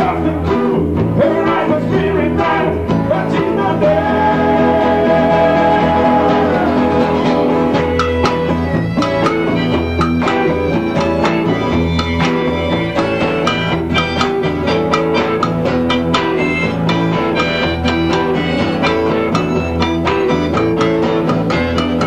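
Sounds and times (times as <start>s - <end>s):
acoustic bass line: 0.0s - 22.0s
guitars: 0.0s - 22.0s
percussion strikes: 6.1s - 22.0s.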